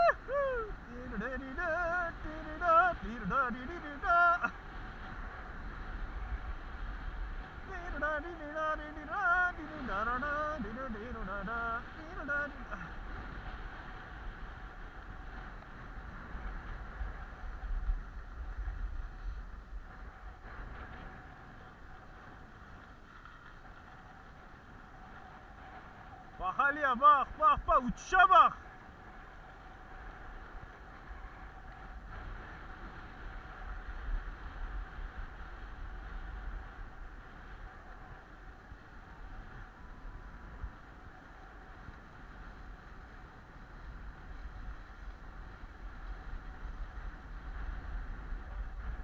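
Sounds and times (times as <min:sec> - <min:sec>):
skis scraping over snow: 0:00.0 - 0:49.0
wind on microphone: 0:00.0 - 0:49.0.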